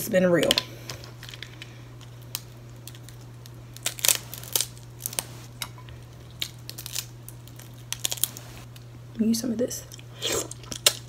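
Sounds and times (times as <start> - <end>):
faint low hum: 0.0 - 11.0
shrimp shell crackling: 0.4 - 8.8.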